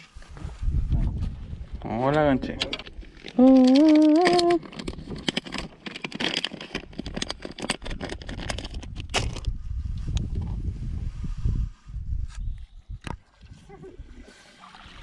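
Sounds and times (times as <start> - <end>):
plastic bag crinkling: 3.0 - 9.0.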